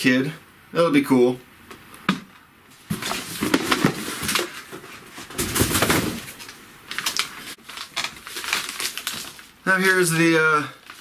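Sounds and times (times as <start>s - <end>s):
packaging rustling and crinkling: 2.8s - 11.0s.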